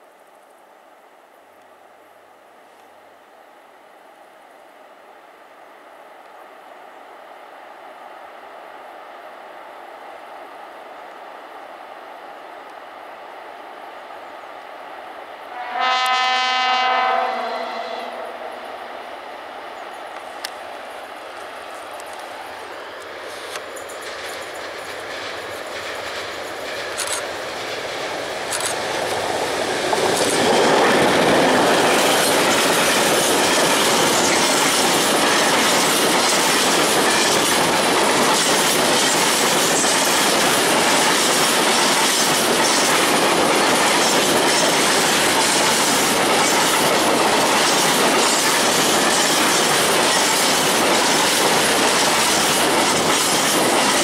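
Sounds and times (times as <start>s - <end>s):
diesel locomotive: 4.8s - 54.0s
train wheels clattering over rail joints: 23.2s - 54.0s.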